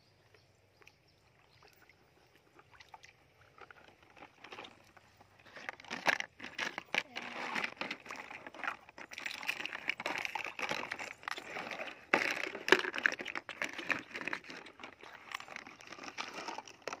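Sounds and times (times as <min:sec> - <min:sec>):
plastic basin rustling and crinkling: 0:03.4 - 0:17.0.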